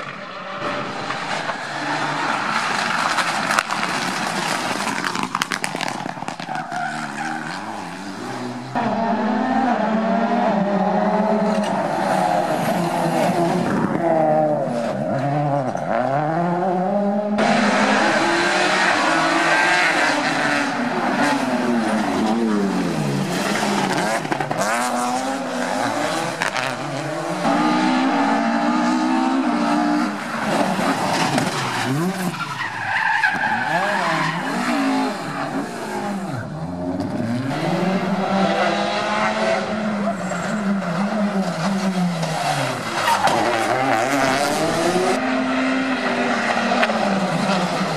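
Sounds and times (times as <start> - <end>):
rally car engines revving: 0.0 - 47.9
tyres squealing on tarmac: 6.3 - 8.0, 30.2 - 36.4.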